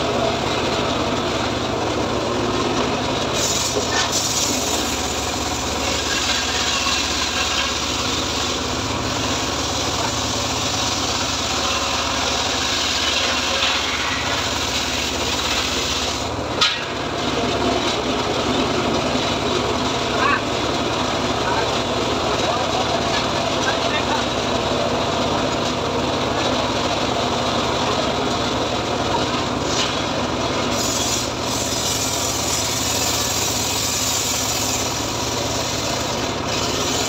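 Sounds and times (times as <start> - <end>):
engine running: 0.0 - 37.0
saw blade cutting wood: 3.3 - 18.0, 29.6 - 37.0.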